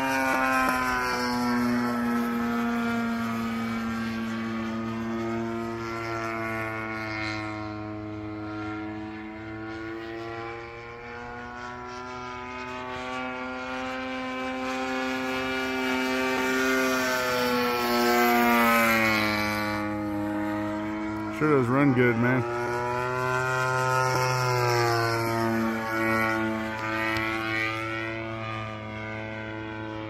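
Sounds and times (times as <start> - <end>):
model airplane engine buzzing: 0.0 - 30.0.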